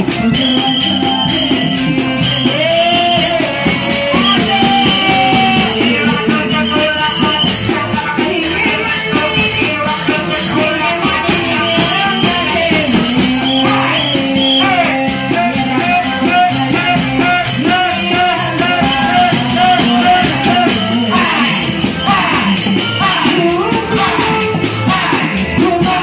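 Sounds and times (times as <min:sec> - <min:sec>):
loud music with fast drumbeat: 0:00.0 - 0:26.0.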